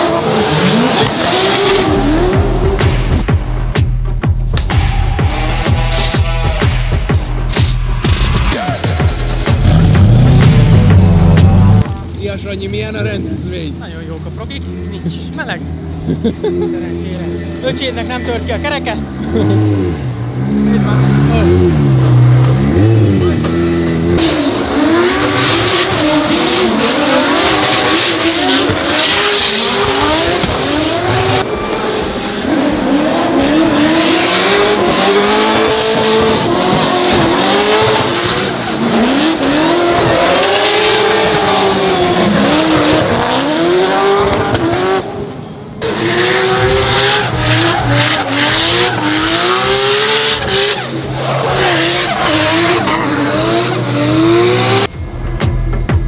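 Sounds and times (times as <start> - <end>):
car engines revving: 0.0 - 55.9
tyre squeal: 19.8 - 24.4.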